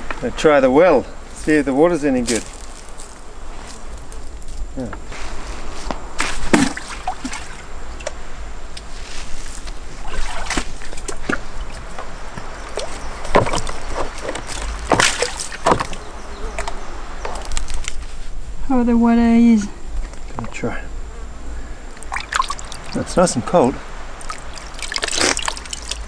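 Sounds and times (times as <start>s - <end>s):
water splashing in bucket: 6.2s - 7.6s, 10.0s - 12.0s, 12.7s - 16.0s, 22.0s - 23.3s, 24.2s - 26.0s.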